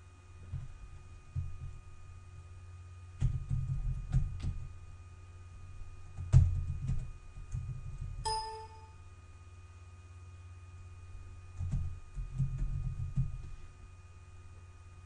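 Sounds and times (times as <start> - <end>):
steady low hum: 0.0 - 15.0
computer alert chime: 8.3 - 9.0.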